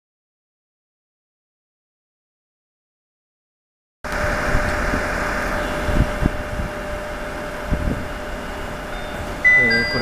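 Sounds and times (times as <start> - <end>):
idling engine hum: 4.1 - 10.0.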